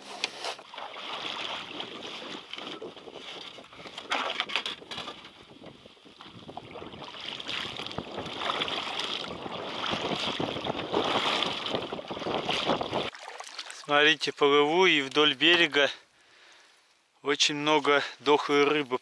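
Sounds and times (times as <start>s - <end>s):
water splashing around a boat: 0.3s - 14.1s.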